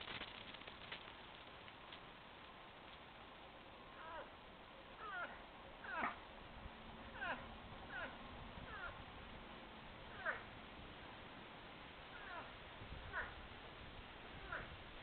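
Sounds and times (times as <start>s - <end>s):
young moose bleating: 4.0s - 4.3s, 5.0s - 6.2s, 7.2s - 9.0s, 10.1s - 10.4s, 12.1s - 13.4s, 14.4s - 14.7s.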